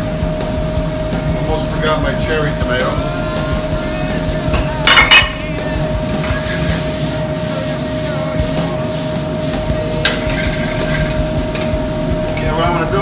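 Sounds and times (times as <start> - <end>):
kitchen fan humming: 0.0 - 13.0
tomatoes clattering into skillet: 4.6 - 5.5.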